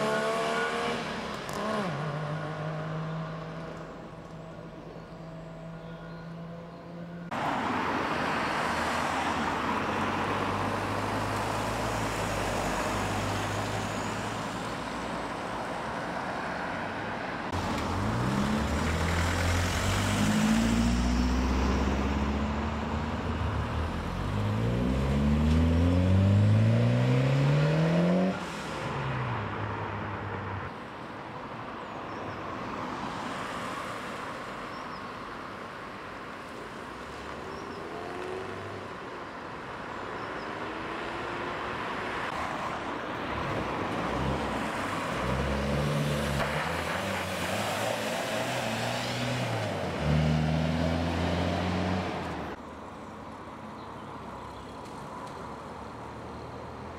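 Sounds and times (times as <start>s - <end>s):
car engines accelerating: 0.0s - 30.6s, 37.0s - 52.6s
loud low engine pulling away: 17.8s - 28.6s.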